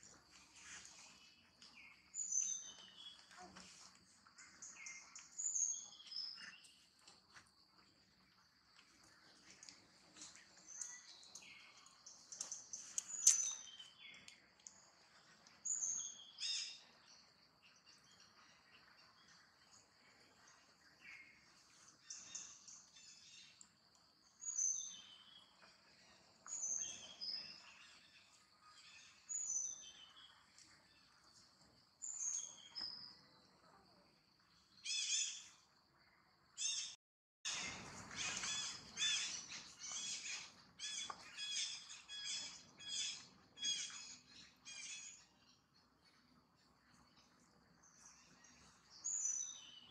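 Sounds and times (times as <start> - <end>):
birds chirping: 0.0 - 7.1, 36.6 - 46.0
harsh bird calls: 36.6 - 45.2.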